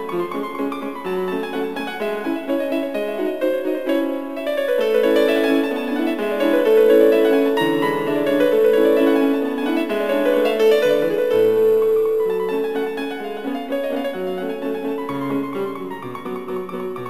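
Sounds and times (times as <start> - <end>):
piano melody over chords: 0.0 - 17.0.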